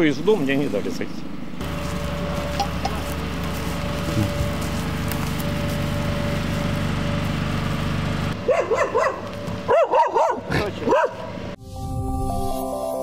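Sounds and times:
dog barking: 8.4 - 11.3.

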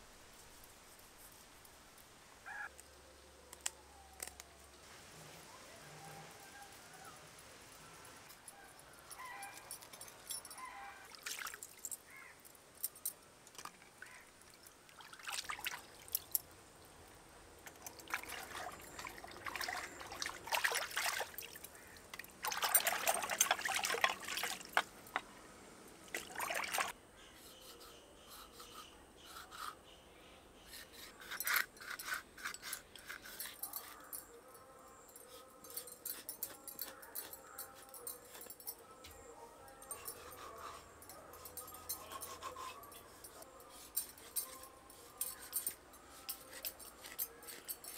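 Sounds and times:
water splashing and dripping: 11.1 - 12.0, 13.5 - 16.4, 17.6 - 25.2, 26.0 - 27.0
hands swishing in water: 26.2 - 26.9
knife scraping fish scales: 27.4 - 29.8, 30.7 - 34.1, 40.1 - 47.9.

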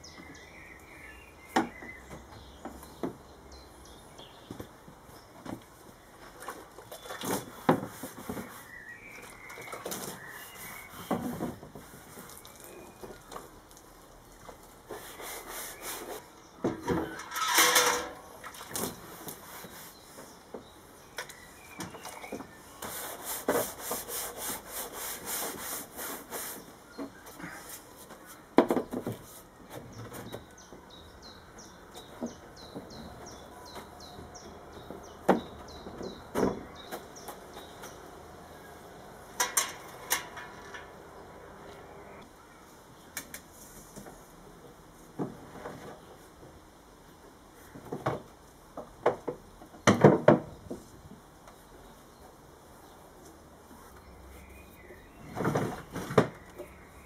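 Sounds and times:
birds chirping: 0.0 - 13.7, 14.8 - 23.3, 26.4 - 43.1, 51.5 - 57.0
knocks and scrapes of plywood: 7.2 - 8.7, 21.8 - 27.2
bristle brush sweeping plywood: 7.3 - 9.3, 10.0 - 12.5, 14.8 - 16.3, 19.0 - 20.4, 22.7 - 28.4.

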